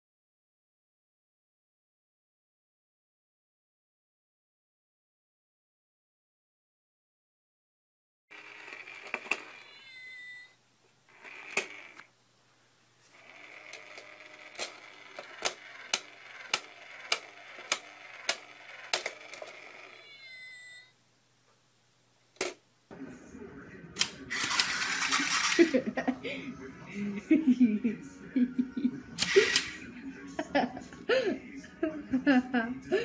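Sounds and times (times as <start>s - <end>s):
cat meowing: 9.4s - 10.6s, 19.9s - 20.9s.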